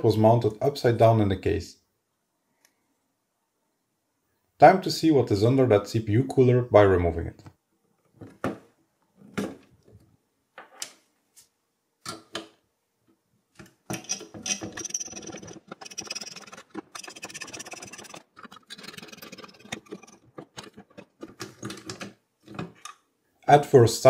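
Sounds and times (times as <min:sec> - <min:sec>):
handling knocks and clicks: 0:12.0 - 0:23.1
screwdriver ratcheting rasp: 0:14.0 - 0:21.2.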